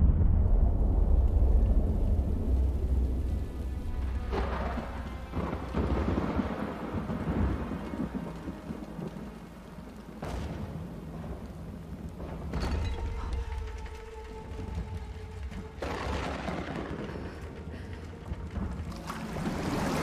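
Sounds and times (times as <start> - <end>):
sharp thunder cracks: 0.0 - 8.5
heavy rain: 0.0 - 20.0
low thunder rumble: 0.0 - 20.0.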